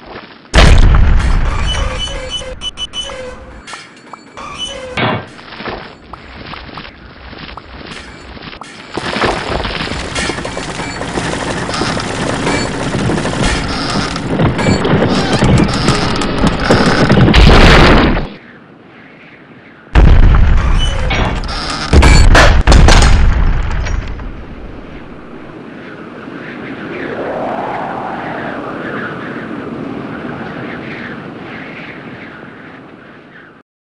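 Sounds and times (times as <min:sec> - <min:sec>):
dense rumbling crackling noise: 0:00.0 - 0:02.9, 0:05.4 - 0:18.4, 0:20.0 - 0:25.6, 0:26.4 - 0:31.1
loud boom: 0:00.6 - 0:02.0.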